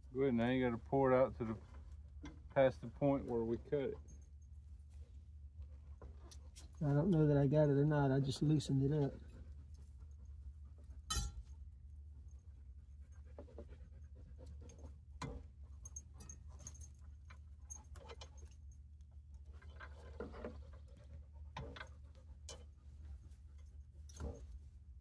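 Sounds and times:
dog panting: 0:12.1 - 0:15.0
winch rope clicks and rustles: 0:13.0 - 0:24.9.

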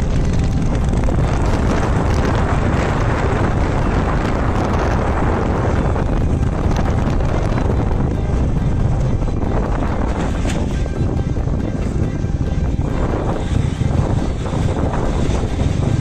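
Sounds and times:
road and engine noise: 0:00.0 - 0:16.0
wind rushing over microphone: 0:00.0 - 0:16.0.

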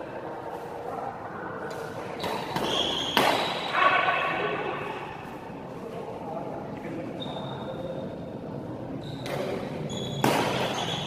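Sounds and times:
racket hitting shuttlecock: 0:01.7 - 0:03.7, 0:09.2 - 0:11.0.

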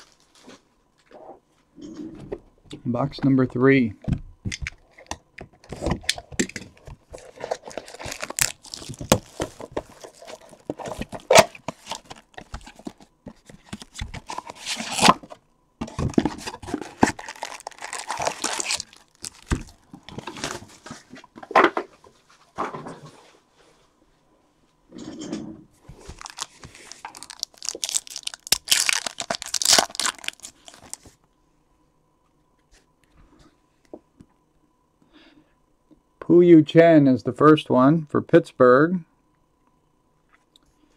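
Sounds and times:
cardboard box and foil packs rustling: 0:05.7 - 0:21.5, 0:25.9 - 0:31.1
plastic shrink wrap crinkling and tearing: 0:07.1 - 0:13.0, 0:13.6 - 0:15.3, 0:15.9 - 0:20.6, 0:26.0 - 0:31.1.

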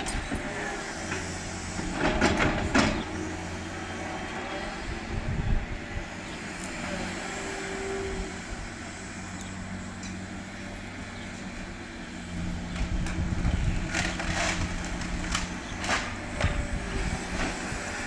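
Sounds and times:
excavator engine and hydraulics: 0:00.0 - 0:18.0
demolition debris crashing: 0:12.9 - 0:16.7.

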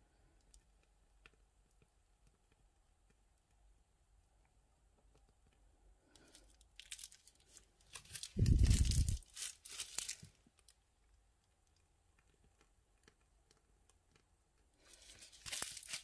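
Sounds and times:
plastic bag crinkling: 0:06.2 - 0:10.7, 0:14.8 - 0:16.0.

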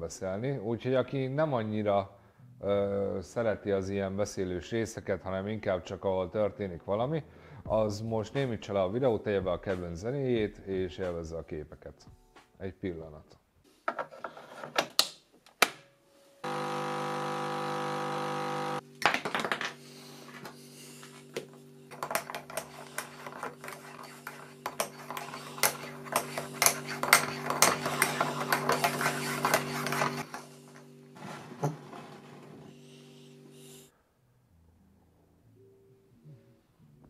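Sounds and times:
coffee machine pump humming: 0:16.4 - 0:18.8.

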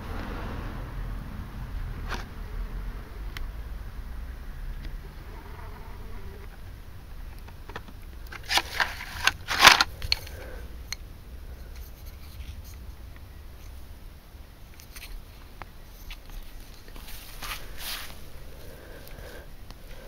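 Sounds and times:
low steady background: 0:00.0 - 0:20.0
scraping and rustling handling noises: 0:07.4 - 0:10.6, 0:11.6 - 0:13.8, 0:14.7 - 0:19.3.

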